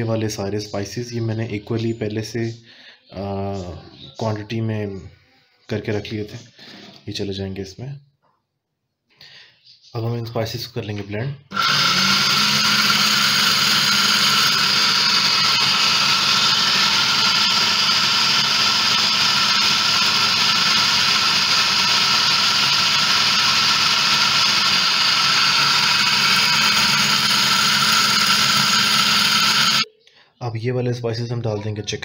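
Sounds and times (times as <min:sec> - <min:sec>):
food processor motor whine: 0:11.5 - 0:29.9.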